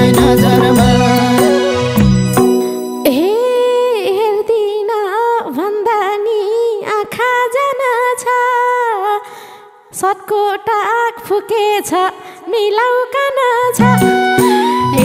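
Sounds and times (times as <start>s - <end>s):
woman singing unaccompanied: 0.0s - 2.0s, 3.0s - 9.2s, 9.9s - 15.0s
band drums and instruments: 0.0s - 2.9s.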